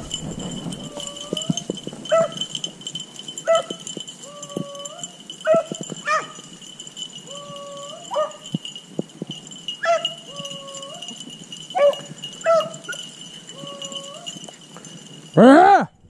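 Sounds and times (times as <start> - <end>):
dogs howling: 0.0 - 2.6, 3.5 - 6.4, 7.2 - 8.5, 9.8 - 14.4
dogs barking: 0.9 - 2.6, 3.4 - 3.8, 4.8 - 6.4, 7.6 - 8.5, 9.8 - 11.1, 11.7 - 13.0.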